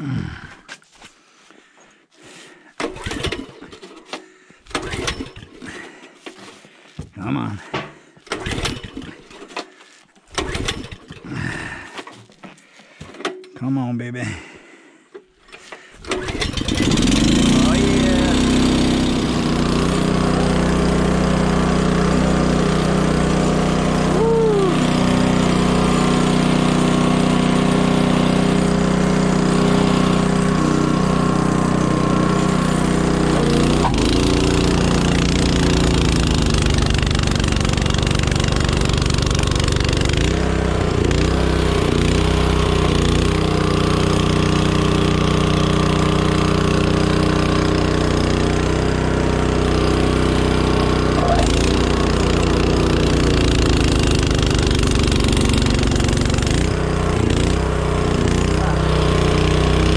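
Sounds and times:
snowblower engine running: 2.2s - 12.3s, 15.4s - 59.9s.

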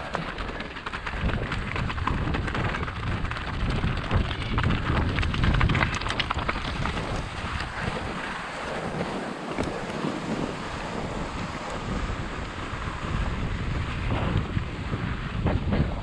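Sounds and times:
tyres crunching over stones: 0.0s - 11.8s
bike rattling: 0.0s - 16.0s
low rumble: 0.0s - 16.0s.

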